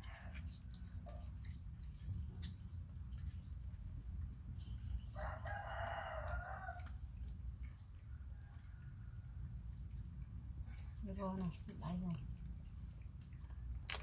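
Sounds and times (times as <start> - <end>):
rooster crowing: 5.0 - 7.0.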